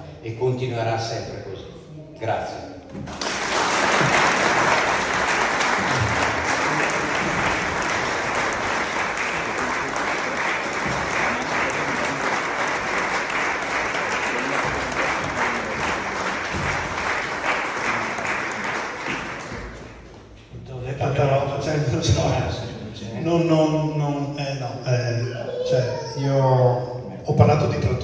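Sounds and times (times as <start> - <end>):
audience applauding: 3.0 - 20.3.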